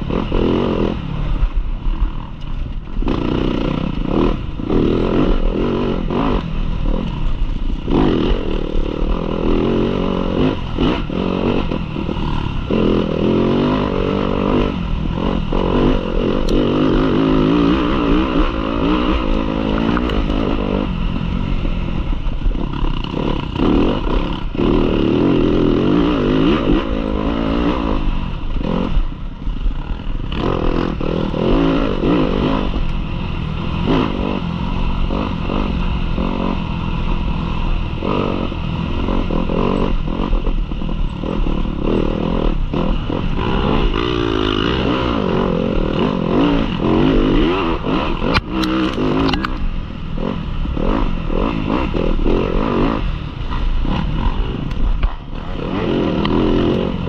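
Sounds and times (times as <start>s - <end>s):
motorcycle engine revving: 0.0s - 57.0s
clatter: 46.0s - 49.7s, 50.9s - 57.0s.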